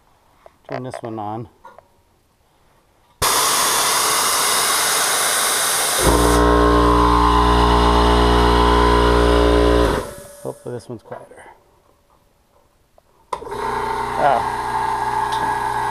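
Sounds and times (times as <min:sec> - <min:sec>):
air compressor motor drone: 0:03.2 - 0:10.6, 0:13.4 - 0:15.9
air hissing: 0:03.2 - 0:10.7.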